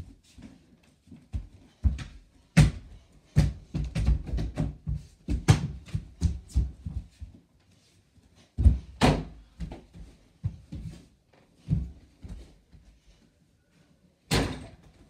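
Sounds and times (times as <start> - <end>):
ball hitting backboard door and floor: 1.8 - 6.7, 14.3 - 14.9.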